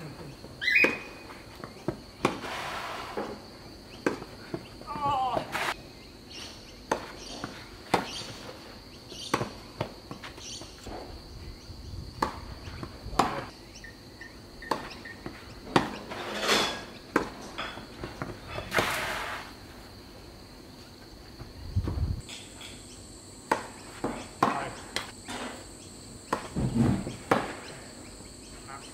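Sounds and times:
insect trill: 0:00.0 - 0:28.9
rackets striking tennis ball: 0:06.9 - 0:10.4, 0:12.2 - 0:13.5, 0:14.6 - 0:16.1, 0:23.4 - 0:25.2, 0:26.3 - 0:27.7.

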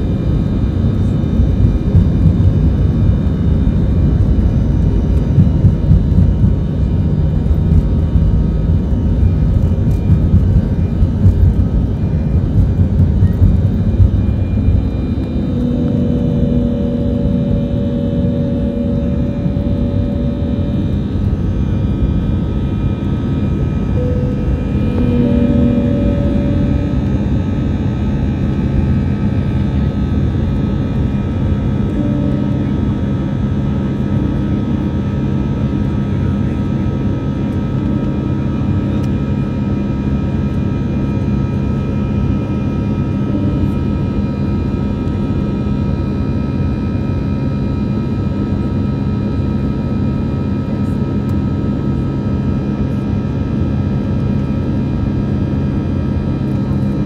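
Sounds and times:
deep rumble of engine and airflow: 0:00.0 - 0:57.0
steady high tones: 0:11.6 - 0:29.4, 0:32.0 - 0:35.4.

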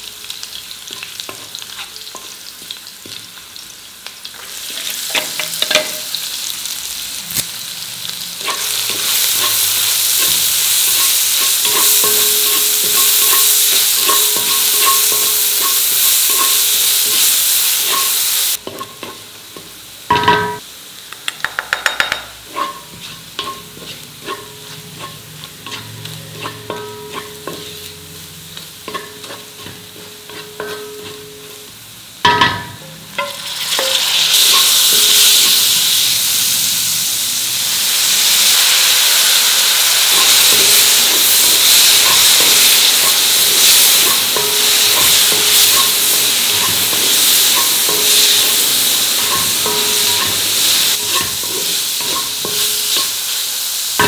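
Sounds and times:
vegetables sizzling in oil: 0:00.0 - 0:54.0
spatula scraping a pan: 0:00.9 - 0:03.2, 0:08.4 - 0:19.2, 0:22.4 - 0:31.6, 0:40.0 - 0:53.3.

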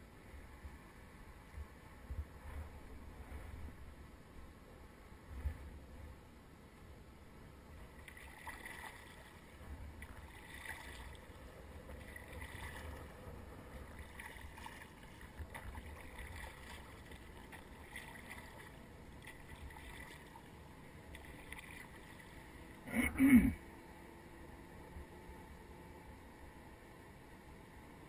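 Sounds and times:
paddle splashing in water: 0:08.0 - 0:11.3, 0:11.9 - 0:13.1, 0:13.9 - 0:20.5, 0:21.1 - 0:22.4.

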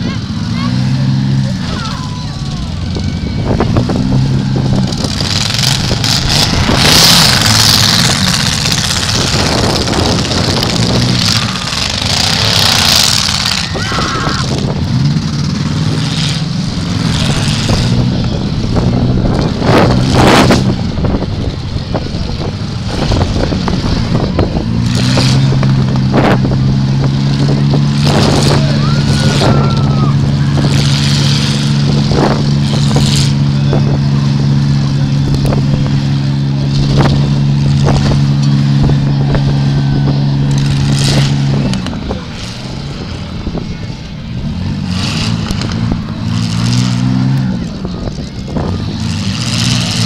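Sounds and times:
car engines revving: 0:00.0 - 0:50.0.

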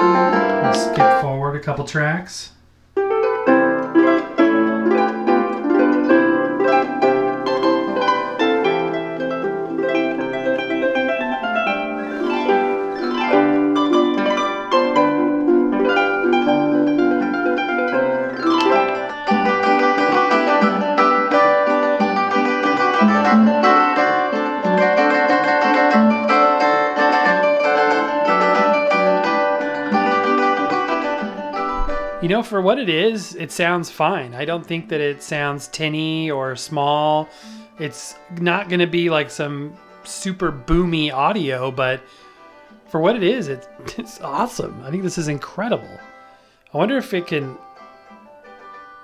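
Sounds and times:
plucked instrumental music from speaker: 0:00.0 - 0:01.6, 0:02.9 - 0:49.0.

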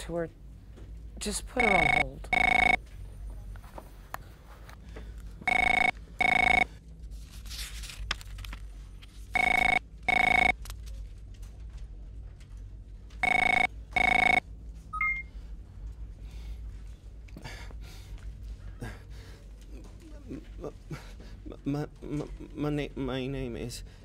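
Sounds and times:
office telephone double rings: 0:13.2 - 0:14.4
short beep: 0:15.0 - 0:15.3.

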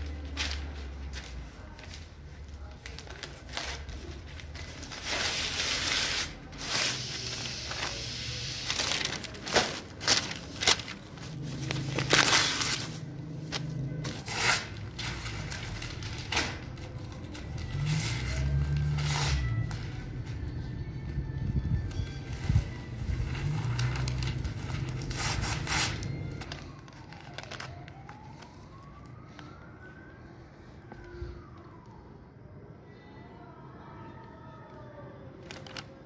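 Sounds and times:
paper rustling: 0:00.0 - 0:20.5, 0:22.2 - 0:29.6, 0:35.4 - 0:36.0
plastic bag crackling: 0:02.5 - 0:19.6, 0:22.2 - 0:28.8, 0:35.4 - 0:36.0.

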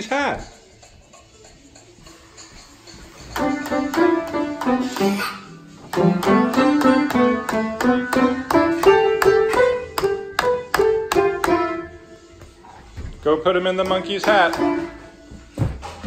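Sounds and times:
piano keys struck unevenly: 0:03.4 - 0:05.2, 0:05.9 - 0:12.0, 0:13.6 - 0:15.3.

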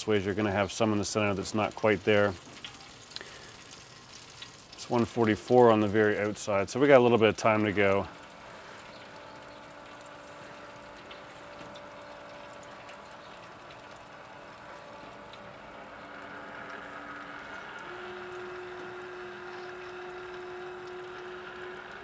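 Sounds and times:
gas burners hissing: 0:00.0 - 0:22.0
rotisserie motor hum: 0:05.6 - 0:22.0.

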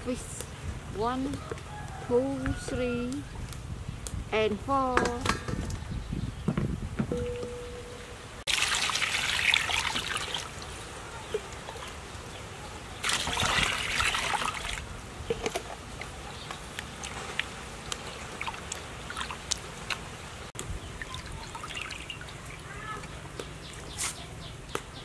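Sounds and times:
splashes and drips: 0:08.4 - 0:23.6
water poured into steel bowl: 0:08.5 - 0:10.6
hands sloshing fish in water: 0:13.0 - 0:14.8.

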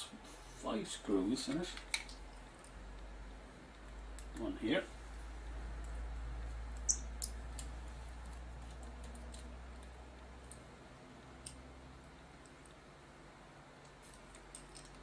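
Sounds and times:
light clicks of small mechanism: 0:11.4 - 0:11.7.

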